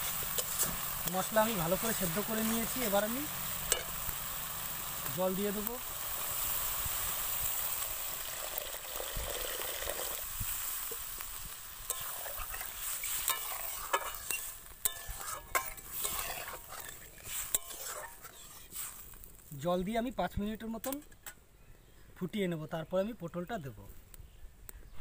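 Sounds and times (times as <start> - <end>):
gravy sizzling: 0.0 - 21.2
metal spatula scraping a pan: 0.1 - 1.0, 11.8 - 19.2
water pouring into a metal pan: 7.5 - 10.4.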